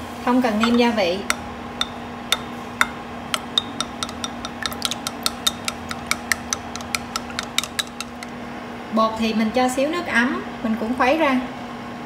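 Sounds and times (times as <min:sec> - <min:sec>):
steady low hum: 0:00.0 - 0:08.9
utensil clinking against bowl: 0:00.6 - 0:08.4.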